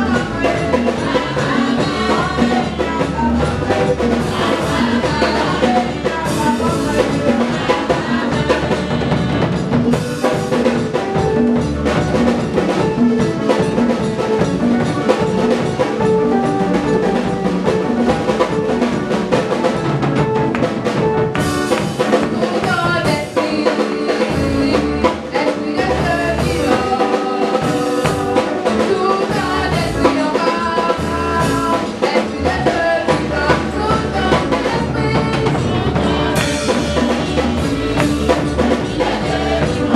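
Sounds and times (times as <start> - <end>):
women singing into microphones: 0.0 - 10.1, 22.0 - 39.9
band accompaniment: 0.0 - 39.9
drum kit steady beat: 0.0 - 39.9.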